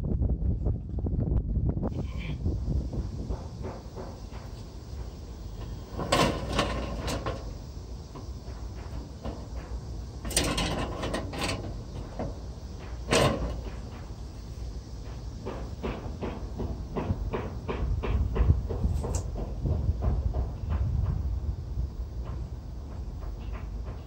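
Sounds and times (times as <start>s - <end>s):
low rumble: 0.0s - 3.6s
metal grill grates clattering: 5.6s - 14.1s.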